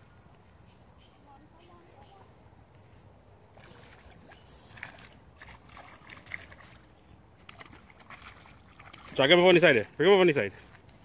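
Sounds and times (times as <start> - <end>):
fish splashing in water: 3.5 - 9.6.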